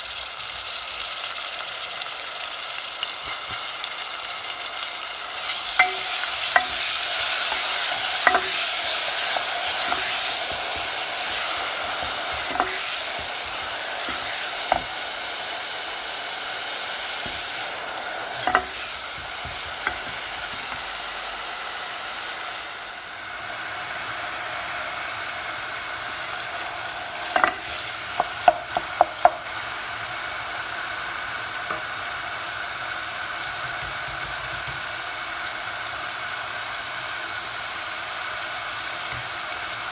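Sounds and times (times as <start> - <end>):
onions sizzling in oil: 0.0 - 39.9
spatula knocking against pot: 5.8 - 15.0, 18.4 - 20.9, 27.2 - 29.4.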